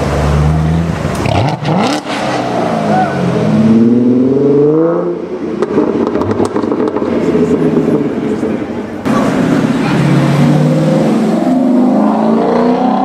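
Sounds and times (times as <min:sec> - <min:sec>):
car accelerating hard: 0:00.0 - 0:08.4, 0:09.1 - 0:13.0
car engine rumbling and revving: 0:00.0 - 0:13.0.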